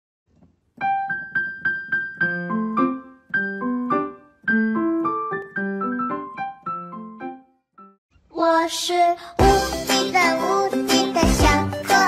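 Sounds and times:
piano melody: 0.8s - 8.0s.

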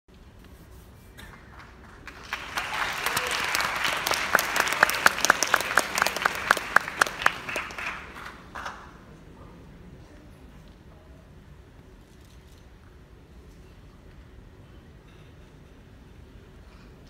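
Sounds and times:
close loud hand claps: 1.2s - 8.9s
audience applauding: 1.2s - 9.1s.

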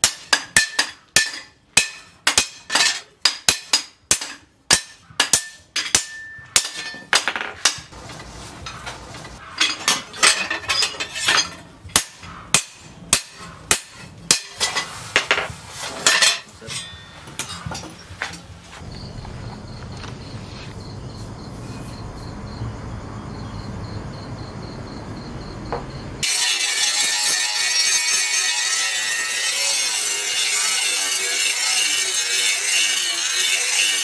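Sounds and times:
hammer beating steel on anvil: 0.0s - 8.0s, 9.6s - 15.3s.

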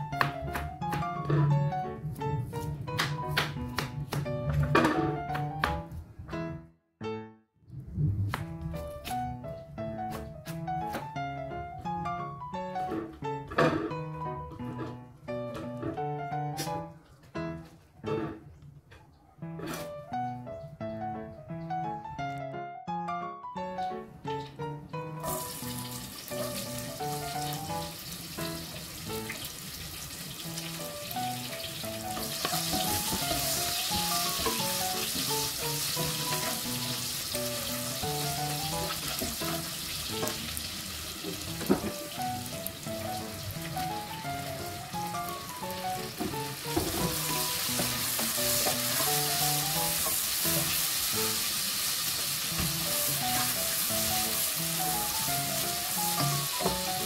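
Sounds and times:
background piano music: 0.0s - 57.0s
shallots frying in hot oil: 25.2s - 57.0s.

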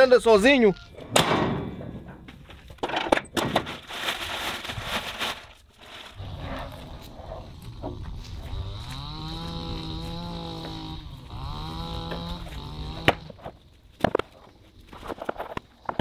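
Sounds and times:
foam boards set down on stack: 2.5s - 3.9s
cow mooing: 6.2s - 13.4s.

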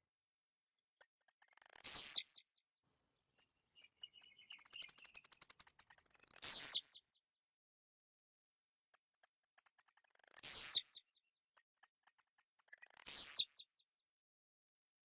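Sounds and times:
bird singing: 1.0s - 7.2s, 9.6s - 11.2s, 12.1s - 13.8s.

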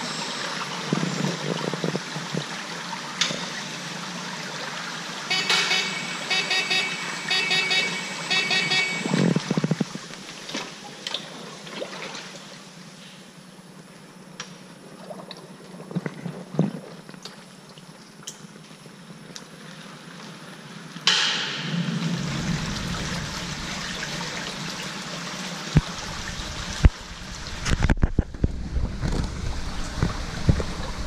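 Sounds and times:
rush of water: 21.1s - 31.0s.

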